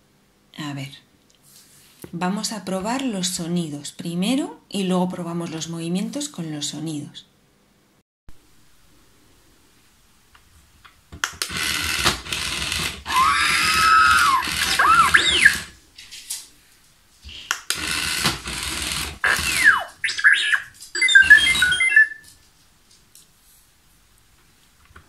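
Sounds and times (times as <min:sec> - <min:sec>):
toy robot beeps and whistles: 0:13.1 - 0:15.7, 0:19.3 - 0:22.3.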